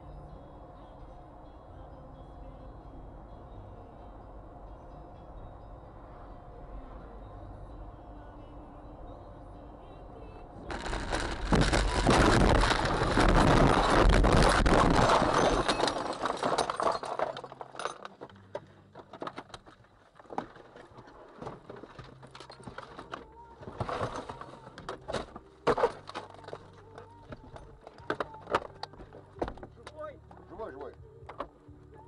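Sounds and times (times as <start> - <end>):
debris clicking and ticking: 10.7 - 20.5
car crashing and scraping: 10.7 - 26.8.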